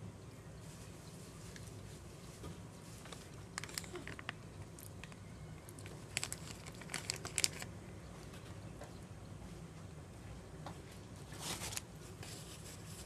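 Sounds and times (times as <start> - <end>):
plastic packaging crinkling: 2.9 - 7.7.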